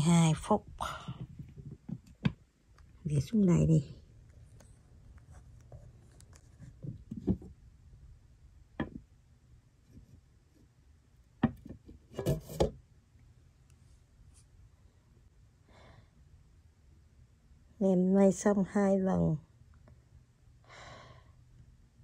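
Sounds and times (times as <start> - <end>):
pot lid knocking and rubbing: 12.1 - 12.8.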